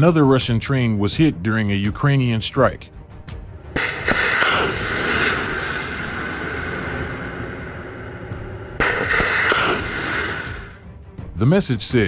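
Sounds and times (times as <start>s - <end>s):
rocket launch roar: 3.8s - 10.8s.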